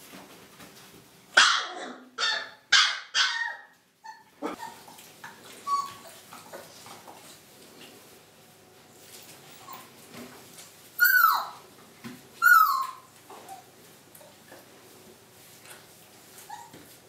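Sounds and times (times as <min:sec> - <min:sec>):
dog barking: 0:01.4 - 0:03.5.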